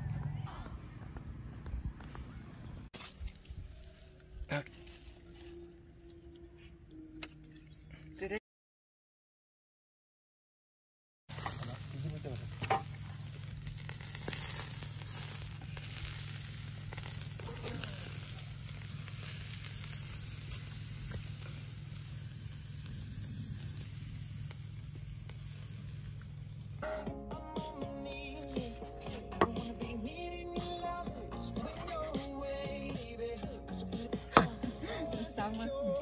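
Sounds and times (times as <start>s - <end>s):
steaks sizzling on a grill: 11.3s - 26.8s.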